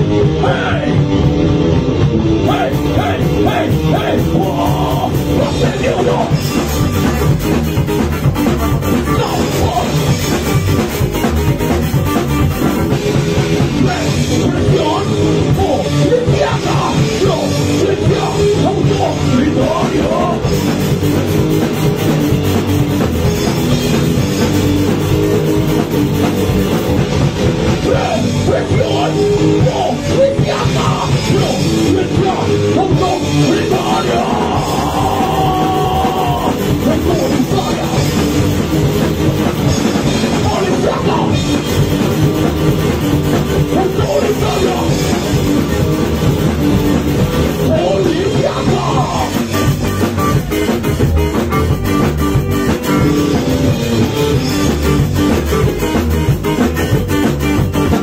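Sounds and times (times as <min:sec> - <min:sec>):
bass guitar: 0:00.0 - 0:58.0
drum kit: 0:00.0 - 0:58.0
electric guitars: 0:00.0 - 0:58.0
person singing into a microphone: 0:02.4 - 0:06.5, 0:09.1 - 0:10.2, 0:13.7 - 0:20.6, 0:27.8 - 0:38.2, 0:39.7 - 0:41.5, 0:43.7 - 0:45.3, 0:47.6 - 0:49.6.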